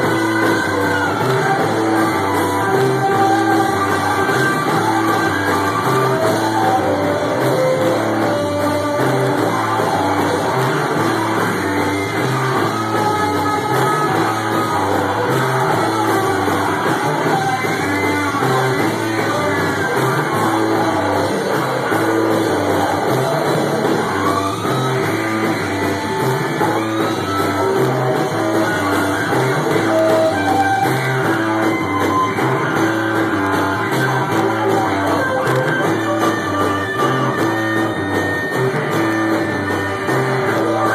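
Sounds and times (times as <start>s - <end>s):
drum kit: 0.0s - 40.9s
electric guitar: 0.0s - 40.9s
sung vocals: 0.0s - 40.9s.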